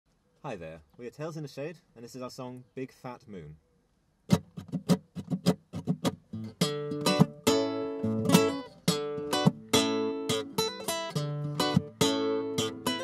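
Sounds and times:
acoustic guitar strumming: 0:04.3 - 0:13.0.

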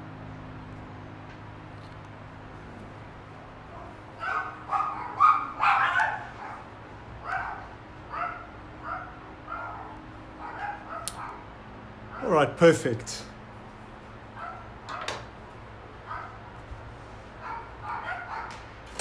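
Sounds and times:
dog barking: 0:03.7 - 0:11.5, 0:14.4 - 0:15.1, 0:16.0 - 0:16.5, 0:17.4 - 0:18.6.

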